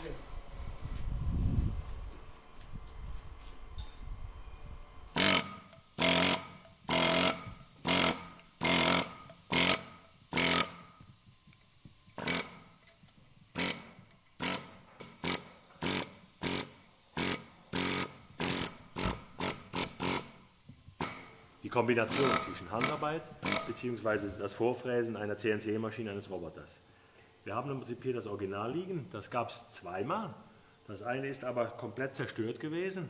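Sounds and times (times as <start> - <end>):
pneumatic hammer on stone: 5.1 - 21.4, 22.0 - 23.9.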